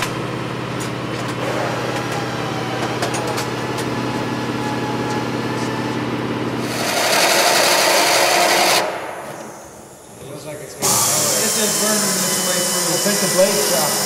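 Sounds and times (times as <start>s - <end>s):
pneumatic air tool hissing: 10.8s - 14.0s.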